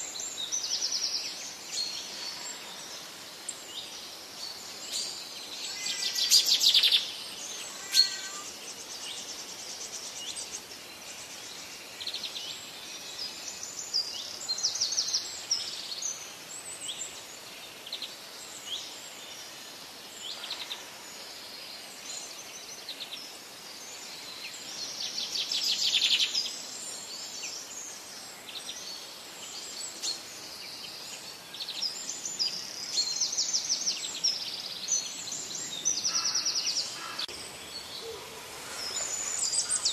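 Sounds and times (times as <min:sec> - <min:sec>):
small birds chirping: 0:00.0 - 0:39.9
steady outdoor hiss: 0:00.0 - 0:39.9
bird trills: 0:07.6 - 0:08.5.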